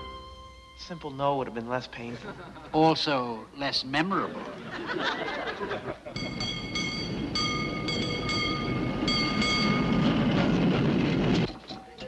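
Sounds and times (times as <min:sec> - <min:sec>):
audience laughter: 0:02.1 - 0:02.8, 0:04.2 - 0:06.3
low rumble: 0:06.2 - 0:11.6.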